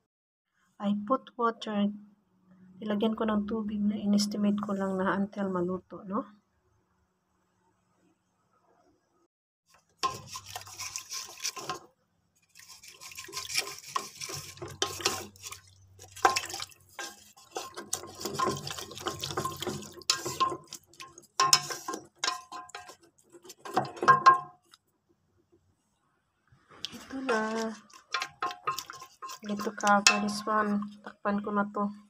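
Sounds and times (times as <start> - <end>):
liquid sloshing in pot: 9.9 - 24.8, 26.8 - 31.0
spatula knocking against pot: 16.2 - 23.0, 23.6 - 24.6, 28.1 - 30.5.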